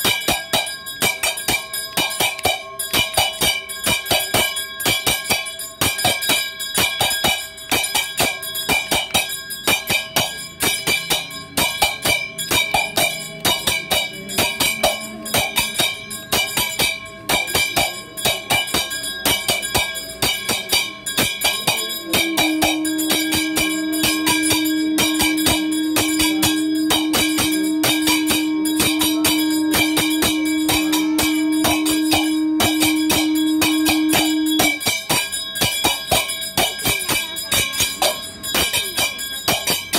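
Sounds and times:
drum beats: 0.0 - 39.9
temple bells ringing rapidly: 0.0 - 39.9
long steady low tone: 21.4 - 35.0.

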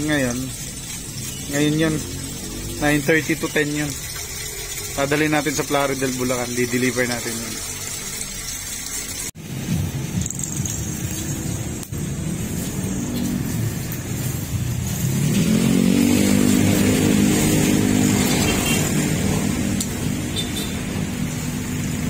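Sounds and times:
vehicle engine revving: 9.8 - 22.0.

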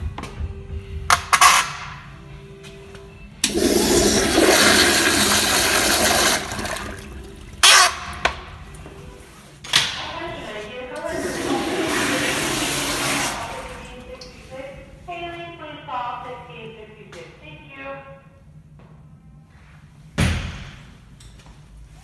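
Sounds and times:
toilet flushing: 3.4 - 8.1, 11.0 - 14.0
toilet tank refilling: 3.4 - 8.1, 11.1 - 14.0.

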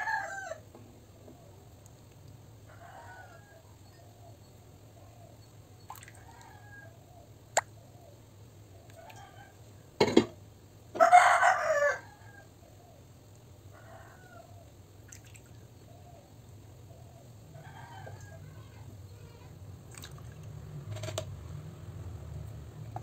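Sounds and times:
rooster crowing: 0.0 - 0.6, 2.7 - 4.0, 11.0 - 12.5, 17.5 - 18.9.

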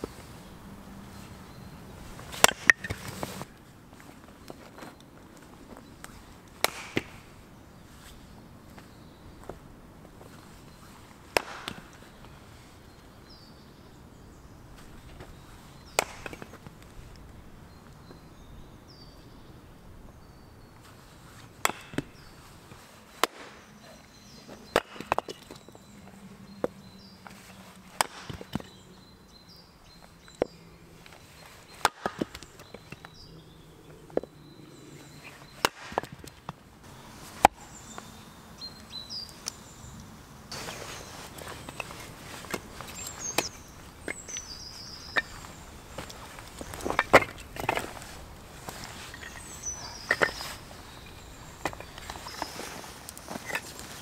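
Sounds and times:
hatchet splitting wood: 6.6 - 7.3, 11.3 - 12.0, 15.9 - 16.6, 21.6 - 22.3, 23.2 - 23.6, 24.7 - 25.6, 28.0 - 28.8, 31.8 - 33.1, 35.6 - 36.4, 42.5 - 48.0.

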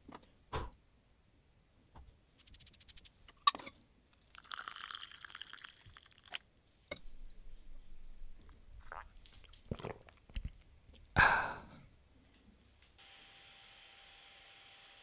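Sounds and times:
water pouring into a glass: 4.2 - 6.4.

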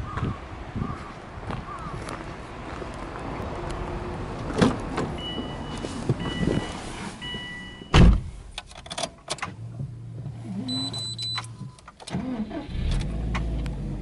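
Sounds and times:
car door opening: 4.5 - 13.6
car warning chime beeping: 5.2 - 8.1, 10.6 - 11.9
car door slamming: 7.8 - 8.4.

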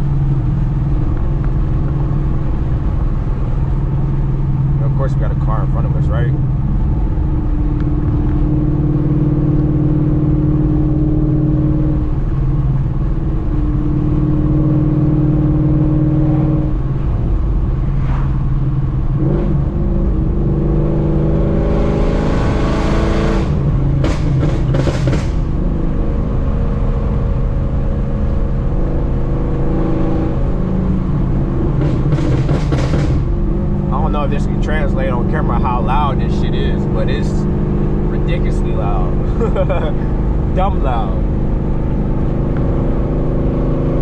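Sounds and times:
car engine cruising: 0.0 - 44.0
exhaust crackles and pops: 0.4 - 3.2
engine revving through gears: 17.8 - 44.0.

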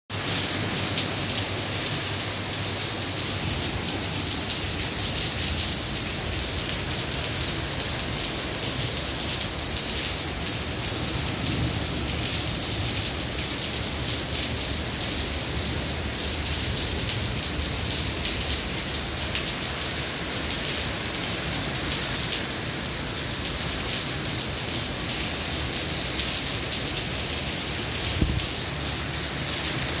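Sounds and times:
heavy rain on pavement and cars: 0.1 - 30.0.

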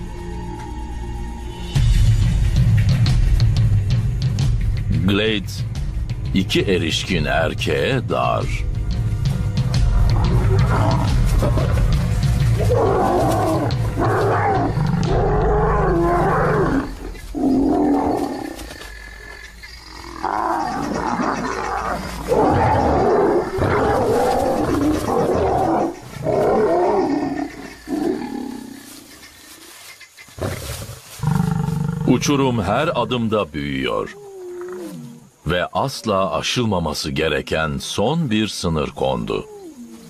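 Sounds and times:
lions snarling and roaring: 9.7 - 33.1, 34.0 - 35.3.

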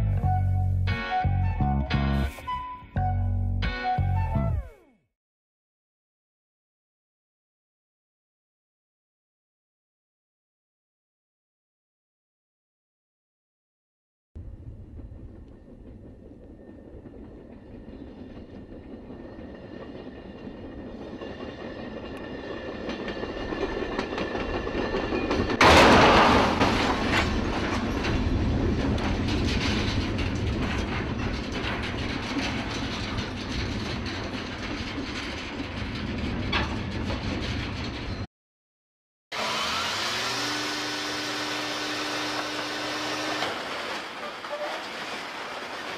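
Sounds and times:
loud train crash: 14.4 - 38.3, 40.0 - 45.9
train cars rumbling: 14.4 - 38.3, 41.9 - 45.9
train wheels clacking on rails: 14.8 - 38.3
metallic clatters and bangs: 24.0 - 38.3, 43.2 - 45.9.

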